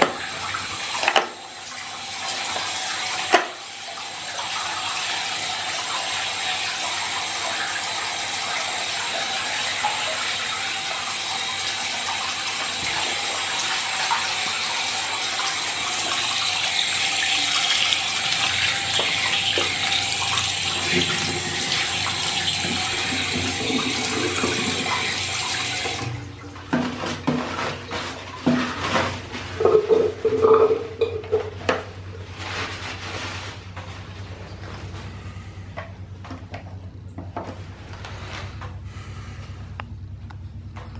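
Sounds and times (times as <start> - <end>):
tap water running into sink: 0.0 - 31.9
paper towels rustling: 26.8 - 30.4, 31.4 - 36.2, 37.4 - 39.4.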